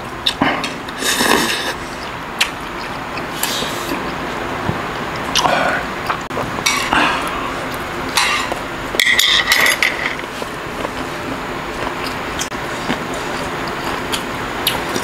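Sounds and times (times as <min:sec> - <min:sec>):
chewing: 0:00.2 - 0:04.3, 0:10.1 - 0:15.0.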